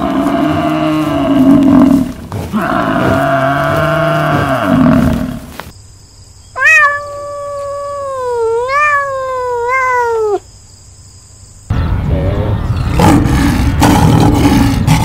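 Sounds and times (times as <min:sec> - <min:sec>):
cat meowing: 0:06.6 - 0:10.4.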